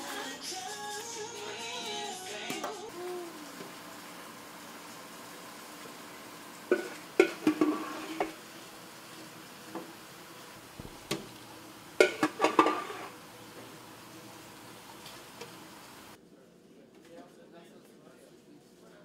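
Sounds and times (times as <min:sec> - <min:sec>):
metal scoop clanking on steel pot: 0:12.0 - 0:13.1.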